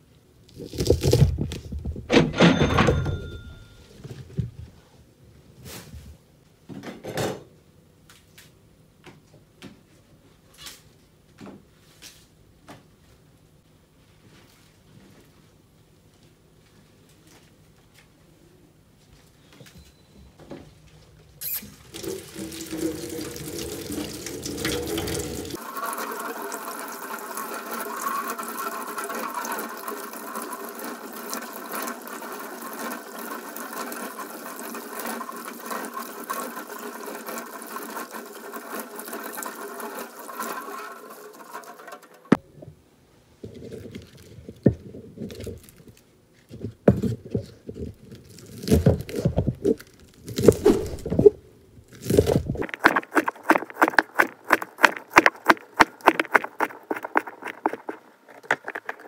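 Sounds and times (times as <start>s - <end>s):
tap water running into sink: 21.5s - 42.4s, 52.2s - 59.0s
knife slicing on cutting board: 50.4s - 51.2s.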